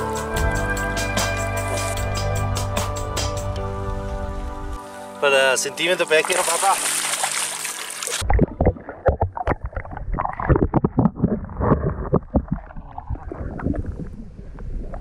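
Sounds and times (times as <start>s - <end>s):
music: 0.0s - 8.2s
water splashing against kayak: 5.8s - 15.0s
wind rumble on microphone: 8.2s - 15.0s.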